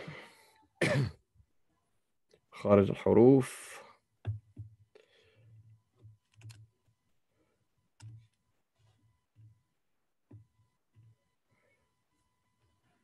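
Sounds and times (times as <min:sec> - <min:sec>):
faint keyboard keystrokes: 0:06.0 - 0:06.7.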